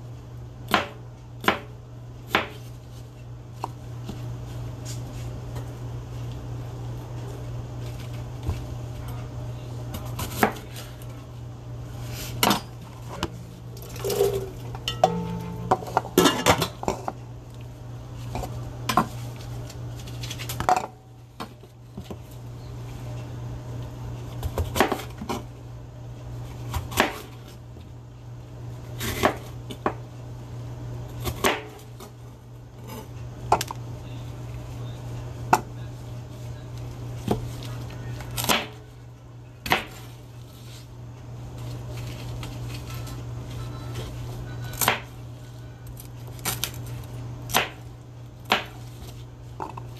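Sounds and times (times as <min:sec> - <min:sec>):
steady low hum: 0:00.0 - 0:49.9
knife chopping on cutting board: 0:00.7 - 0:01.7, 0:02.3 - 0:02.6, 0:48.5 - 0:48.8.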